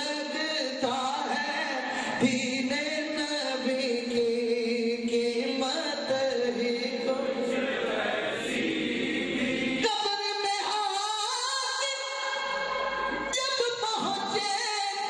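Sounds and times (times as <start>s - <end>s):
man singing into a microphone: 0.0s - 7.5s.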